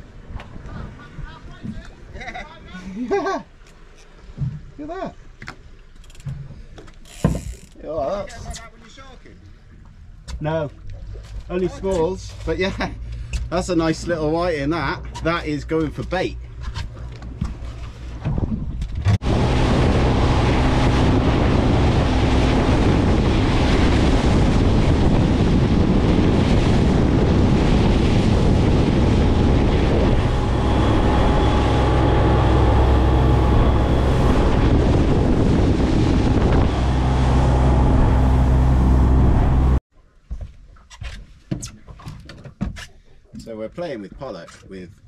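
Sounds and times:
water rushing past hull: 0:00.0 - 0:39.8
outboard engine running: 0:09.7 - 0:39.8
wind on microphone: 0:18.2 - 0:39.8.

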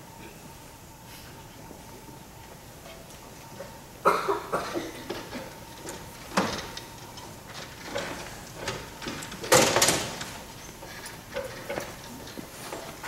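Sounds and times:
irregular clicks and knocks: 0:05.1 - 0:13.0.

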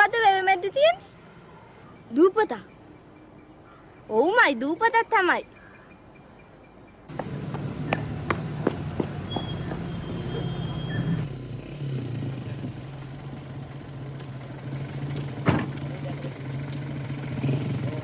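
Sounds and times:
car engine idling: 0:12.3 - 0:17.3
car door shutting: 0:15.4 - 0:15.8.

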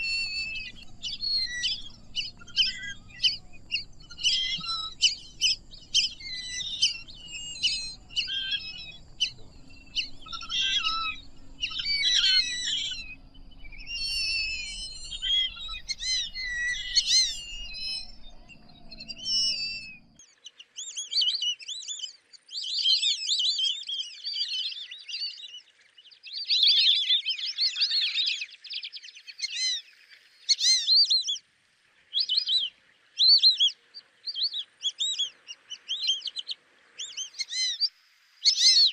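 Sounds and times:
ducks whistling calls: 0:00.0 - 0:20.2
faint low hum: 0:00.0 - 0:20.2.

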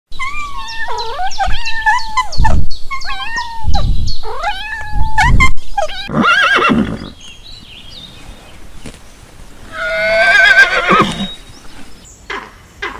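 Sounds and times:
kittens mewing: 0:00.2 - 0:06.6.

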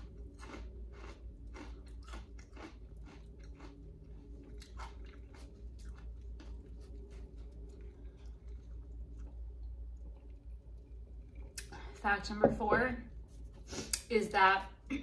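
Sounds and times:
chewing crunchy snack: 0:00.0 - 0:11.7.

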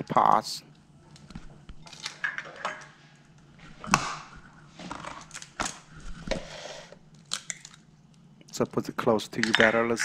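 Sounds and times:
eggs cracking on glass bowl: 0:07.1 - 0:08.2, 0:09.4 - 0:10.0.

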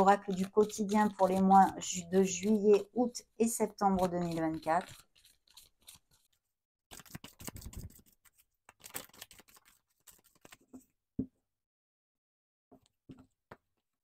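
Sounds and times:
cards being shuffled: 0:06.9 - 0:10.8.

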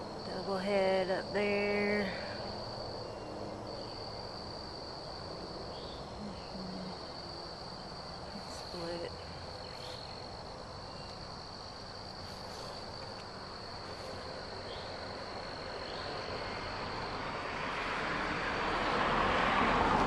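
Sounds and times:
insects trilling: 0:00.0 - 0:20.0
vehicle approaching: 0:12.2 - 0:20.0.

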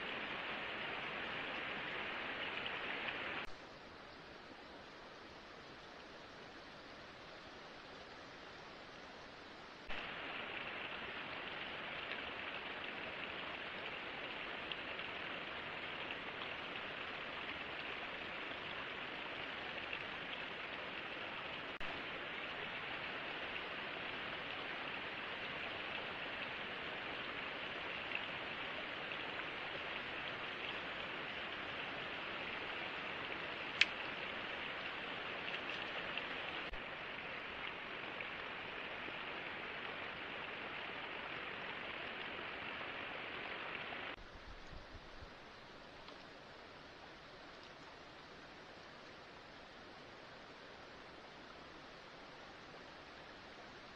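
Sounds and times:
faint ticks: 0:33.7 - 0:34.2, 0:46.0 - 0:46.3, 0:47.5 - 0:48.0.

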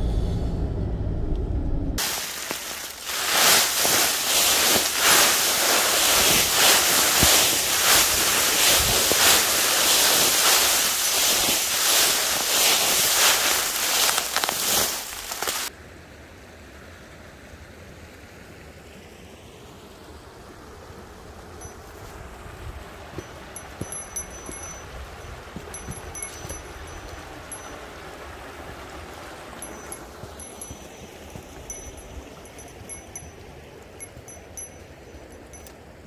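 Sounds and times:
footsteps through dry leaves: 0:02.0 - 0:15.7, 0:23.1 - 0:24.8, 0:25.5 - 0:27.8
faint steady hiss: 0:02.0 - 0:36.0.

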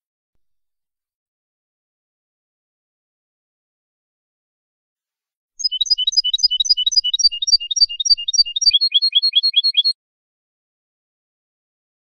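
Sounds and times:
finch singing: 0:05.6 - 0:09.9.

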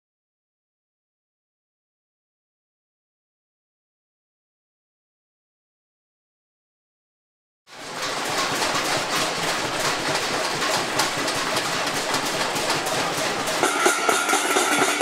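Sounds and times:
people banging pots and pans: 0:07.7 - 0:15.0.

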